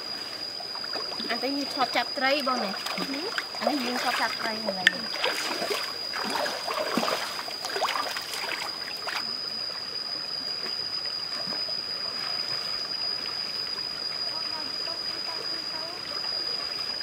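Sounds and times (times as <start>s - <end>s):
running water rushing: 0.0s - 9.2s
feet splashing through stream: 5.1s - 9.2s.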